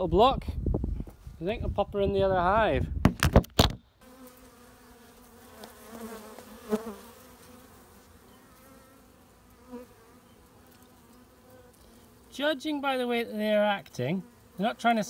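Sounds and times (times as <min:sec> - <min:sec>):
honeybees buzzing: 0:04.0 - 0:15.0.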